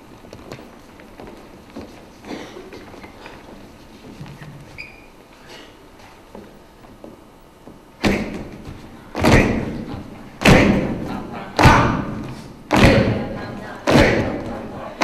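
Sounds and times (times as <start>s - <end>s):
stomping on wooden stage: 6.4s - 15.0s.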